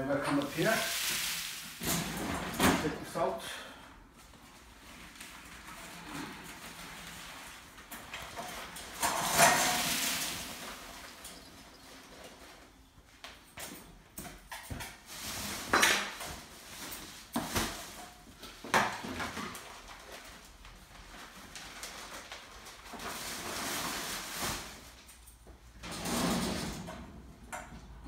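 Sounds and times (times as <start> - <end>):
metal tray sliding and knocking: 8.6 - 11.8.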